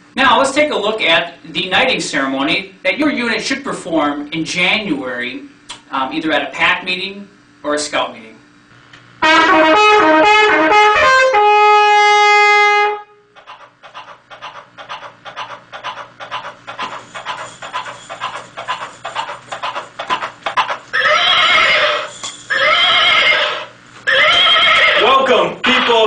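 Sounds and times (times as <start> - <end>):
trumpet fanfare: 9.2 - 13.2
horse hoofbeats: 13.4 - 21.9
horse whinnying: 20.9 - 25.2.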